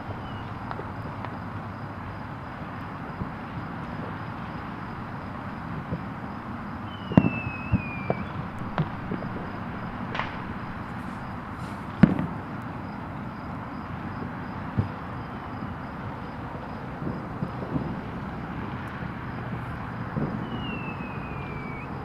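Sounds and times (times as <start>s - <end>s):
firework whistle: 0.0s - 1.4s, 6.7s - 12.3s, 19.6s - 22.0s
fireworks bangs and pops: 0.0s - 1.5s, 3.1s - 12.5s, 14.1s - 15.1s, 17.0s - 21.8s
steady background noise: 0.0s - 22.0s.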